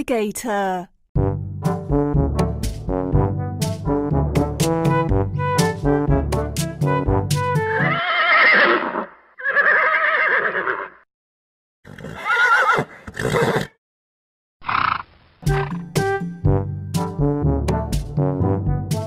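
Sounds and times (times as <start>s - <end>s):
horse neighing: 7.7s - 11.0s, 11.8s - 13.8s, 14.6s - 15.8s.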